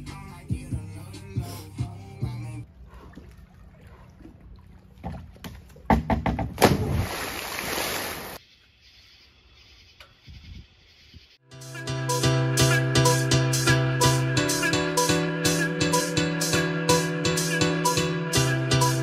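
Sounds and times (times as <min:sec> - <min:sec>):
sharp knocks: 0:05.9 - 0:06.9
splash into pool: 0:06.6 - 0:08.4.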